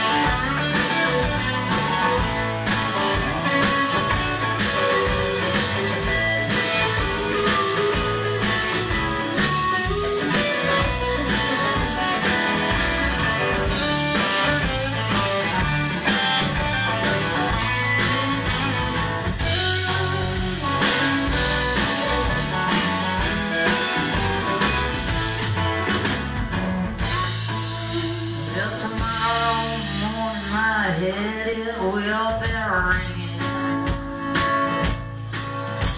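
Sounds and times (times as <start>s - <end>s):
drum hits: 0.0s - 30.2s
country-rock band playing: 0.0s - 35.9s.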